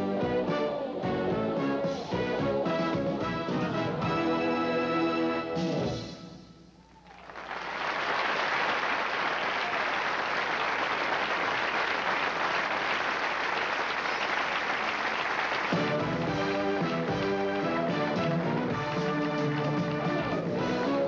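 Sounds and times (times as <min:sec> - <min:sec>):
music: 0:00.0 - 0:06.8, 0:15.6 - 0:21.0
audience applauding: 0:07.0 - 0:21.0.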